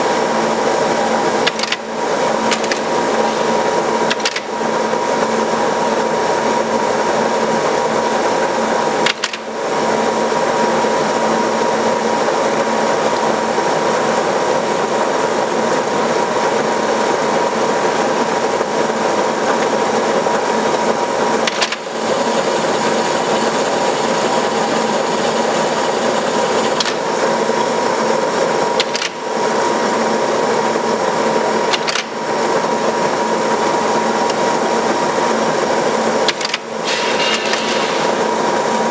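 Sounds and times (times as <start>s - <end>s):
lathe running with whine: 0.0s - 38.9s.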